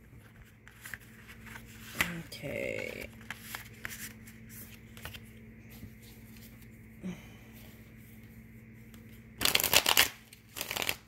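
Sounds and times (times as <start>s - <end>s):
steady low hum: 0.0s - 11.0s
cards rustling and tapping: 0.2s - 6.7s, 8.8s - 11.0s.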